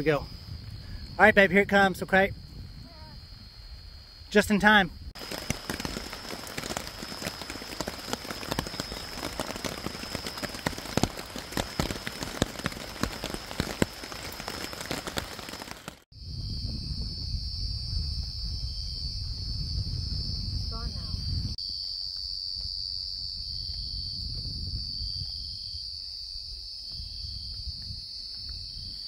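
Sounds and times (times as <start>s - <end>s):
crickets chirping: 0.0s - 29.0s
rain on a tent: 5.2s - 16.1s.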